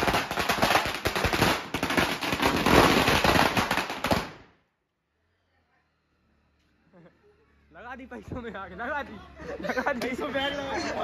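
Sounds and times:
firecrackers bursting: 0.0 - 4.7.

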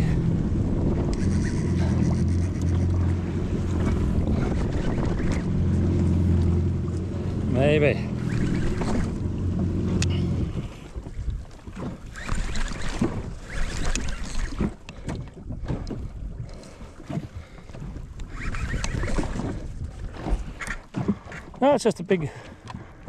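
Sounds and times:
jet ski engine idling: 0.0 - 15.6
wind buffeting microphone: 0.0 - 21.6
water sloshing against hull: 0.0 - 23.0.

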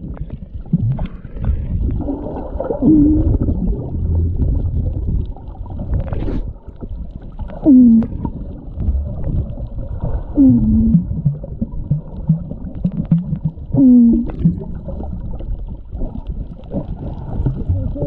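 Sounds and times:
low water rumble: 0.0 - 18.0
long falling underwater moans: 2.3 - 5.1, 7.5 - 9.4, 10.1 - 15.3, 17.3 - 18.0.

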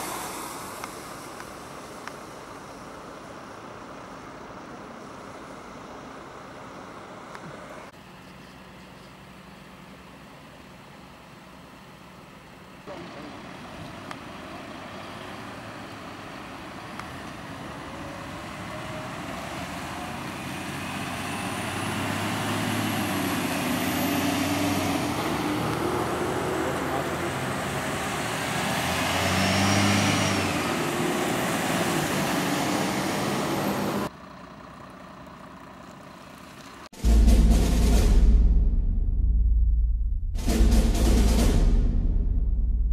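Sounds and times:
tyre noise on wet road: 0.0 - 7.9, 12.6 - 36.9
heavy vehicle engines: 0.0 - 38.1.

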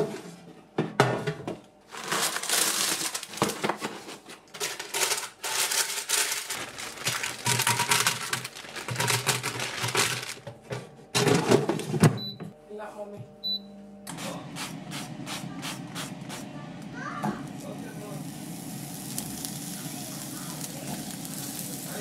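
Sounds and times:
frozen food rattling into basket: 1.9 - 10.5
plastic and paper crinkling: 1.9 - 10.6.

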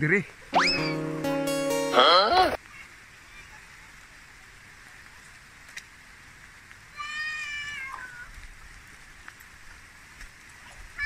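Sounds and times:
meow-like animal call: 7.0 - 8.3.

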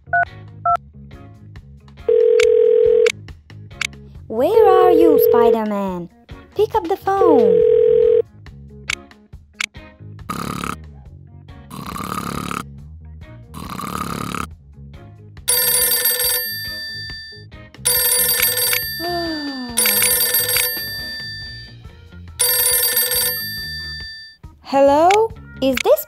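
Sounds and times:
background music: 0.0 - 26.0
telephone bell ringing: 2.1 - 3.1, 4.6 - 5.7, 7.3 - 8.2, 15.5 - 24.4
cartoon snoring: 10.3 - 10.9, 11.7 - 12.8, 13.5 - 14.5.

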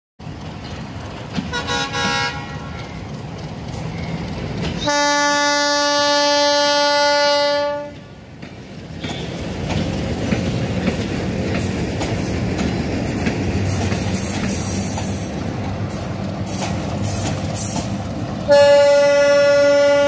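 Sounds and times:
locomotive rumble: 0.2 - 20.0
locomotive horn: 1.5 - 3.0, 4.8 - 8.1, 18.5 - 20.0.

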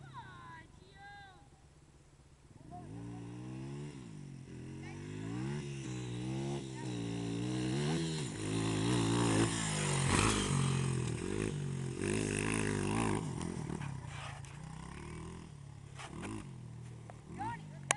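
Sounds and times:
dirt bike engine revving: 2.6 - 17.9.

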